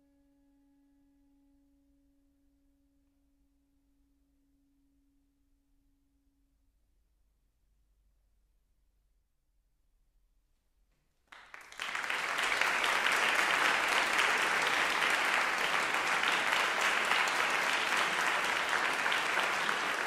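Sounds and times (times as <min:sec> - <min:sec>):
audience applause: 0:11.3 - 0:20.0.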